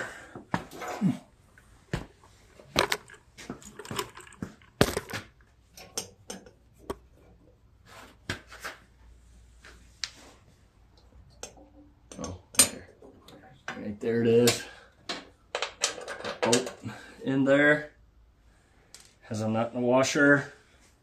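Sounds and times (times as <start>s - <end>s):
metal clinks and knocks: 2.6s - 7.4s, 11.3s - 13.8s, 14.4s - 16.8s.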